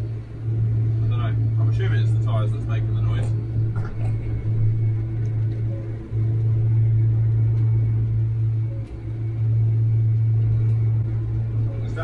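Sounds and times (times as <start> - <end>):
tractor drone inside cab: 0.0 - 12.0.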